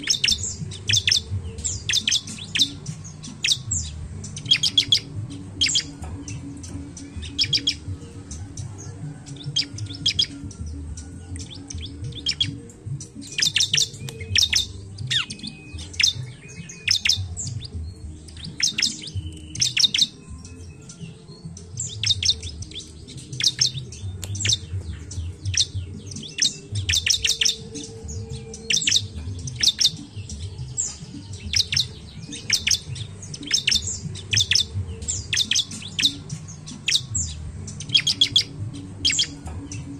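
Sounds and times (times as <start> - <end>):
bird chirping: 0.0 - 39.9.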